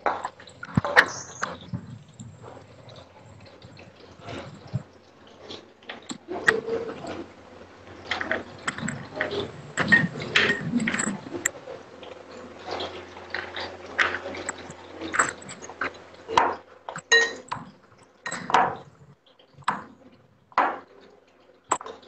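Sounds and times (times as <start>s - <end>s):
food crackling in frying oil: 0.0s - 22.0s.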